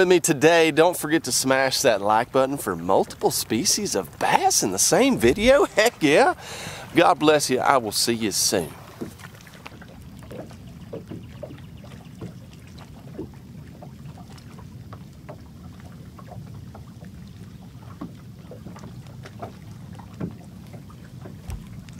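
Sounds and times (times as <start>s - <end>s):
water slapping against hull: 1.4s - 21.9s
low wind rumble: 1.7s - 7.9s.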